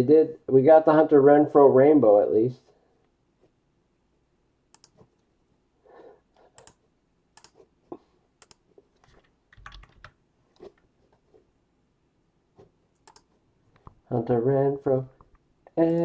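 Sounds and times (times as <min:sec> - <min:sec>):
computer keyboard keystrokes: 0:04.8 - 0:05.0, 0:06.6 - 0:06.8, 0:07.4 - 0:07.6, 0:08.4 - 0:10.2, 0:13.0 - 0:13.9.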